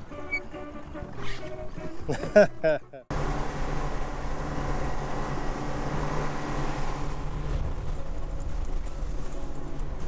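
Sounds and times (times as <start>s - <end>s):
boat engine humming: 0.0s - 10.0s.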